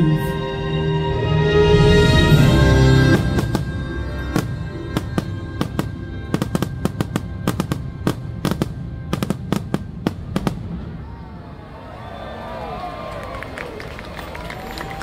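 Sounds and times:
show music: 0.0 - 10.8
fireworks bursting with sharp bangs: 3.1 - 11.4.

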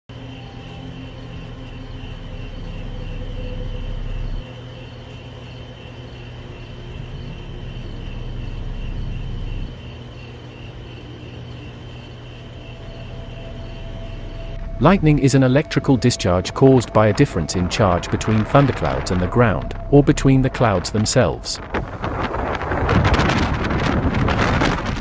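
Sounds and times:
crickets chirping: 0.1 - 25.0
low rumble: 1.5 - 4.5, 6.4 - 9.8, 12.5 - 25.0.

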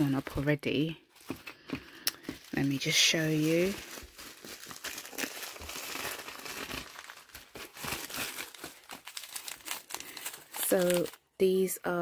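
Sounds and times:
packaging crinkling: 1.2 - 11.3.

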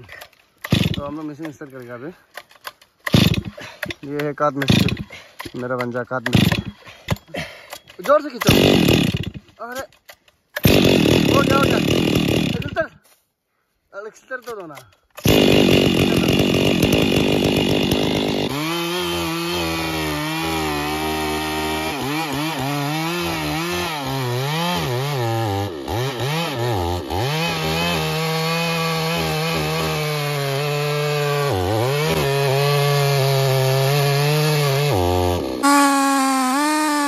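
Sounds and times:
chainsaw sawing into trunk: 0.0 - 1.7, 2.4 - 13.1, 14.4 - 37.0.

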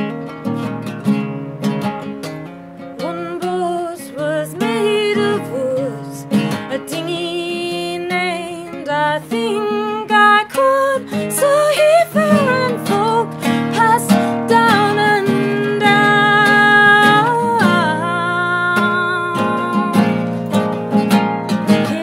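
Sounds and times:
classical guitar strummed: 0.0 - 22.0
woman's wordless singing: 3.0 - 20.3, 21.5 - 22.0.

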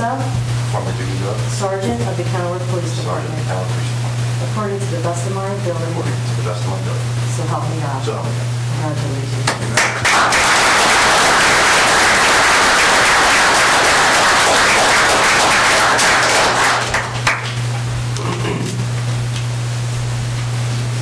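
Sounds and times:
audience applauding: 9.5 - 17.6.

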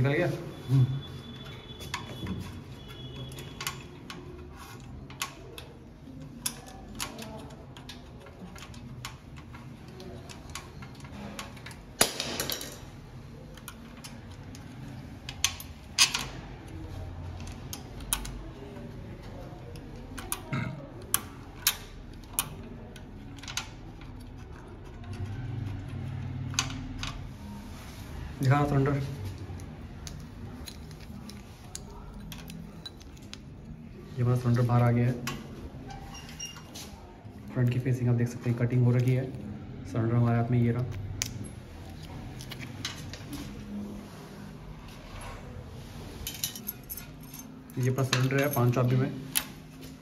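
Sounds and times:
metal lock parts clicking: 1.9 - 18.6, 19.2 - 27.3, 29.4 - 33.8, 40.7 - 43.2, 46.3 - 49.6.

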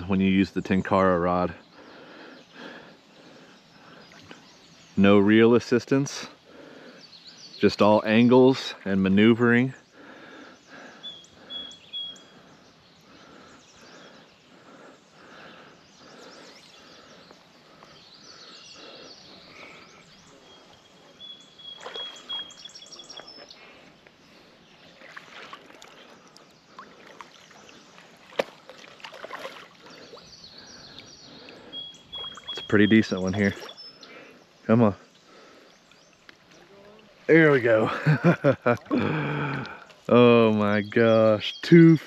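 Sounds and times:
bird chirping: 0.0 - 42.0
creek water: 0.0 - 42.0
fish splashing: 21.7 - 22.5, 25.0 - 26.2, 26.8 - 30.2.

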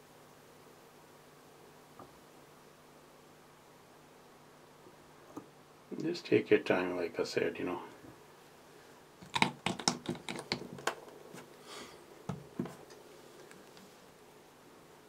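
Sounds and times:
small sharp clicks and taps: 9.2 - 11.1
soft rustle: 11.1 - 14.4.

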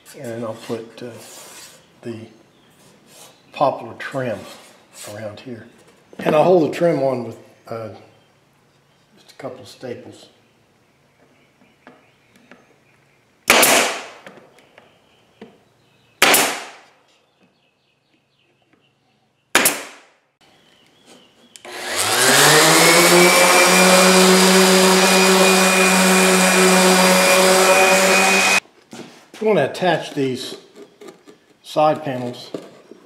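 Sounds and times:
pneumatic stapler shots: 13.5 - 14.2, 16.2 - 16.8, 19.6 - 20.0
orbital sander running: 21.7 - 28.6.

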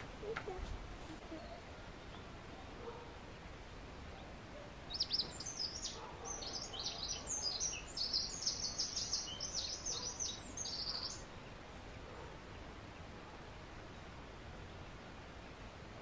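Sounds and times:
songbird chirping and trilling: 1.3 - 13.2.

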